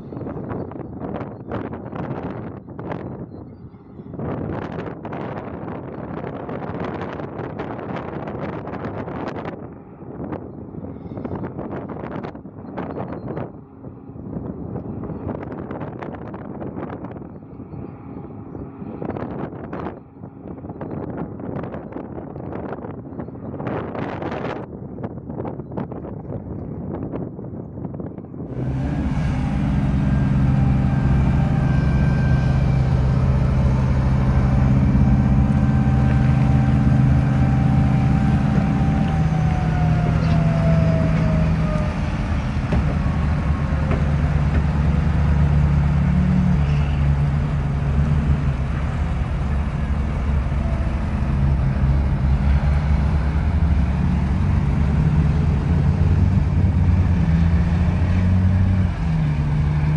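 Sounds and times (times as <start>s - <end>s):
thin falling whine: 28.4s - 59.8s
diesel truck engine running hard: 28.4s - 59.9s.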